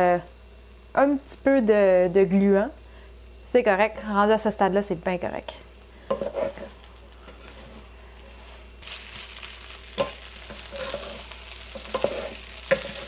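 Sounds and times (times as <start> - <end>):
rice sizzling in a wok: 5.7 - 13.0
wooden spatulas knocking wok: 10.0 - 13.0.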